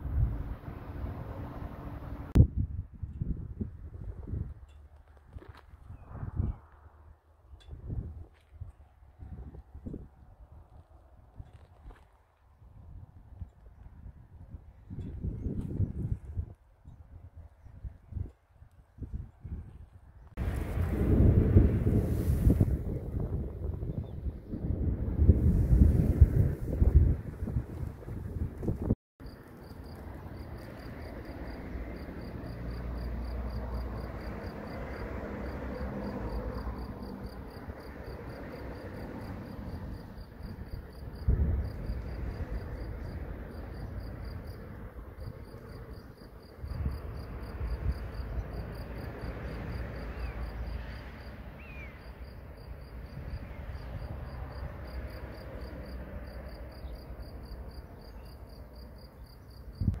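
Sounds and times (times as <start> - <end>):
wind rumble on microphone: 0.0 - 29.0, 29.9 - 60.0
cricket chirping: 29.2 - 60.0.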